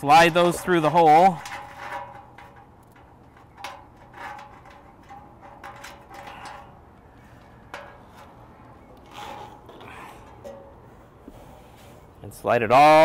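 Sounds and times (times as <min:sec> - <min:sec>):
plastic conduit scraping and knocking: 0:01.0 - 0:06.8, 0:07.4 - 0:10.7.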